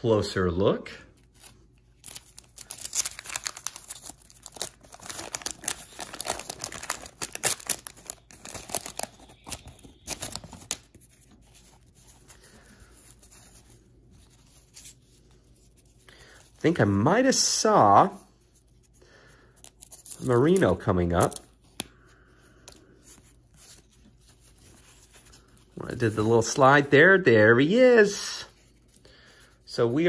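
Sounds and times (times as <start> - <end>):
wax paper wrapper tearing and crinkling: 1.2 - 13.3, 19.7 - 21.5.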